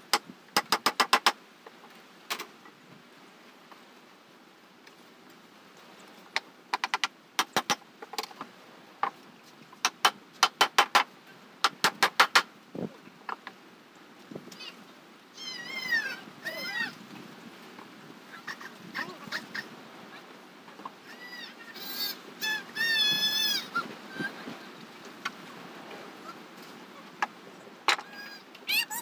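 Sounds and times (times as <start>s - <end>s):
animal calls rising and falling: 14.5s - 17.0s, 21.0s - 24.8s, 26.1s - 27.2s, 27.9s - 29.0s.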